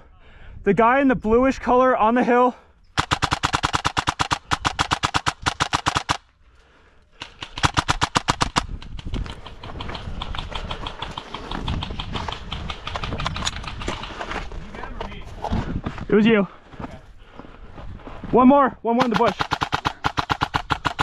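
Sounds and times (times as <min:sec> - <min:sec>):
airsoft gun firing bursts: 0:03.0 - 0:06.2, 0:07.2 - 0:14.2, 0:19.0 - 0:21.0.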